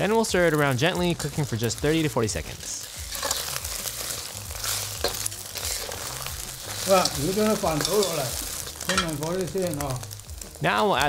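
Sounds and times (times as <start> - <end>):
eggs sizzling in a wok: 0.0 - 11.0
metal ladle scraping a pan: 2.6 - 9.2.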